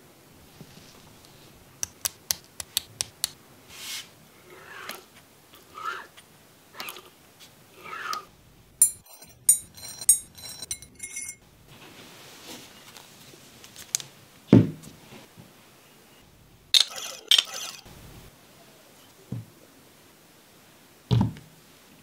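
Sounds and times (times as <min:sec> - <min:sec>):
metal clinks: 0:08.8 - 0:11.4.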